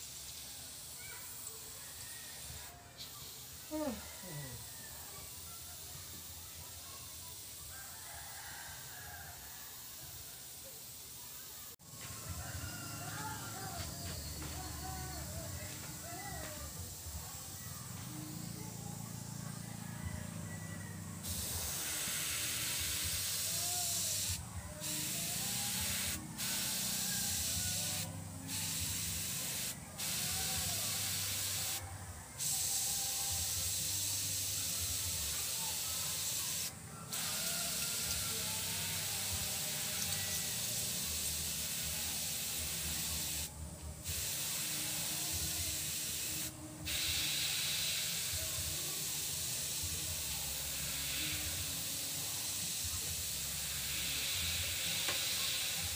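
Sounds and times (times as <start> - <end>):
airbrush hissing: 0.0 - 7.9, 8.8 - 20.5, 21.2 - 55.9.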